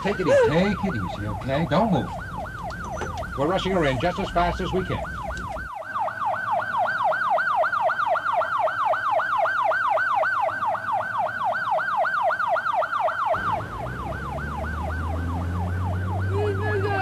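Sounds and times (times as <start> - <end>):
low vehicle rumble: 0.0 - 5.7, 13.3 - 17.0
ambulance siren yelping: 0.0 - 17.0.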